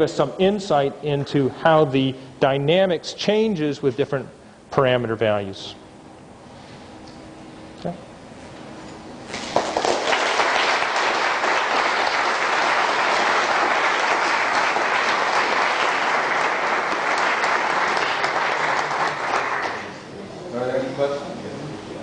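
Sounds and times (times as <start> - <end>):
audience applauding: 9.3 - 20.1.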